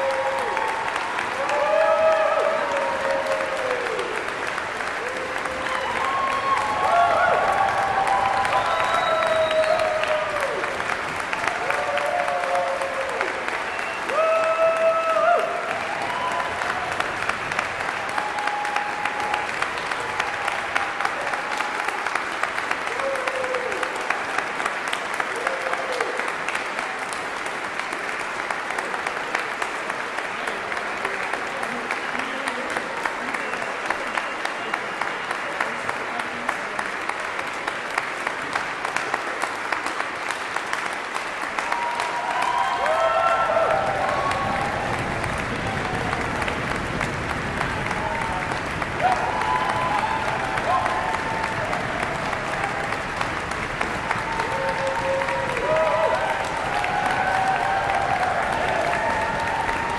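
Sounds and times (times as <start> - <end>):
audience applauding: 0.0 - 59.9
crowd cheering call: 0.0 - 59.9.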